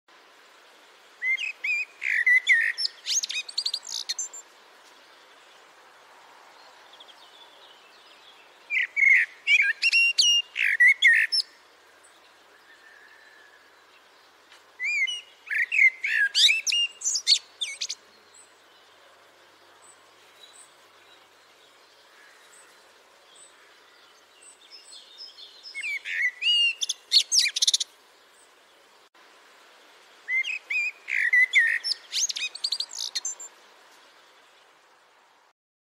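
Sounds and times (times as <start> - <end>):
blackbird singing: 1.2 - 4.4, 7.0 - 11.5, 14.8 - 19.0, 19.8 - 27.9, 30.3 - 33.5.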